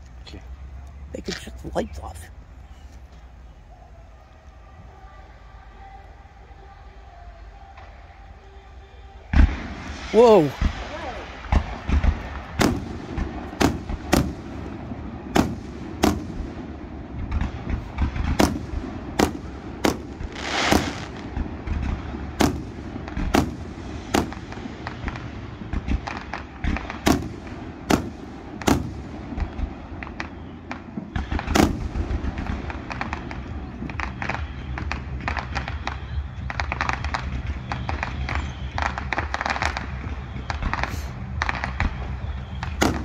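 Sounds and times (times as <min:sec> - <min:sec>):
fireworks bursting with sharp bangs: 0:00.0 - 0:43.0
low rumble: 0:00.0 - 0:43.0
hissing rush: 0:01.9 - 0:33.4
crackling pops: 0:09.3 - 0:14.7, 0:17.2 - 0:43.0.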